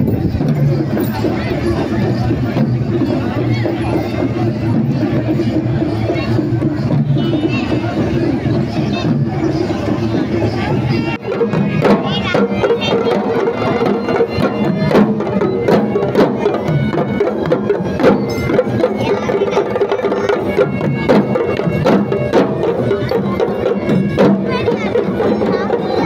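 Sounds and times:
drums beaten in fast pattern: 0:00.0 - 0:26.0
large crowd noise: 0:00.0 - 0:26.0.

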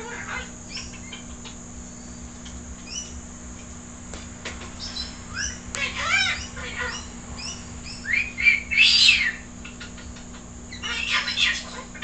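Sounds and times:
bird chirping and calling: 0:00.0 - 0:03.2, 0:04.8 - 0:12.0.

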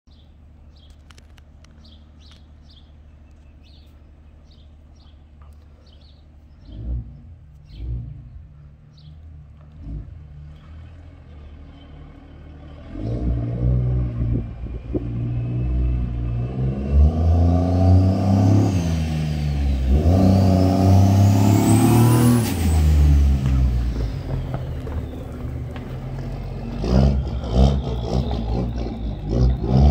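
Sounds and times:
truck engine accelerating past: 0:06.6 - 0:29.9.

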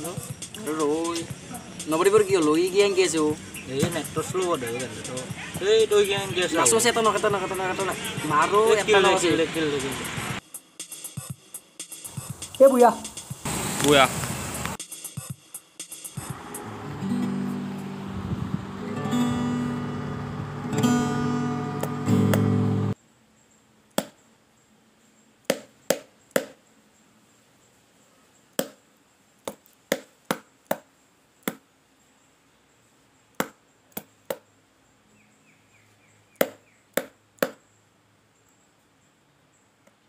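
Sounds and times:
guitar music: 0:00.0 - 0:10.4, 0:16.2 - 0:23.0
cleaver chopping chicken on wood: 0:25.5 - 0:26.6, 0:28.6 - 0:28.8, 0:29.5 - 0:30.8, 0:36.4 - 0:37.6.

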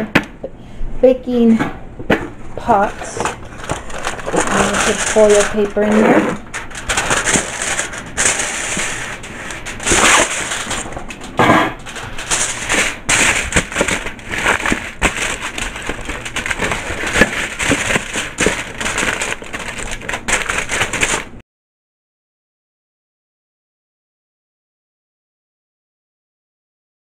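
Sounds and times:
aluminium foil crinkling: 0:02.7 - 0:21.4.

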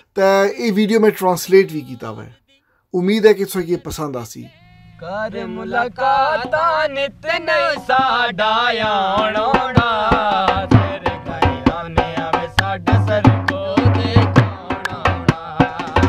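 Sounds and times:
man singing folk song: 0:00.2 - 0:16.0
drum deep beats: 0:07.6 - 0:16.0.

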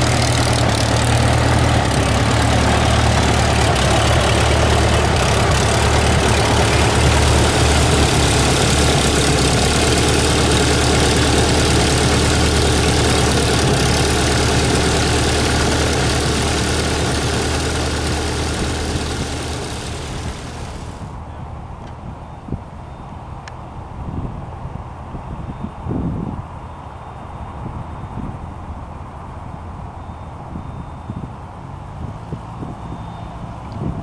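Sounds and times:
airplane engine idling: 0:00.0 - 0:21.4.

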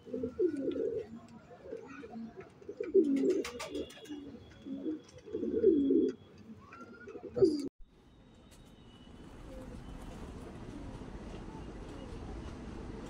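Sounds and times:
pigeons cooing: 0:00.0 - 0:07.7.

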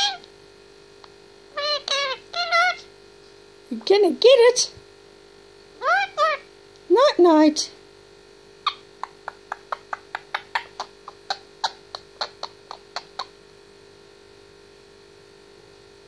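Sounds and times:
parakeet sharp clicks: 0:08.6 - 0:13.3.

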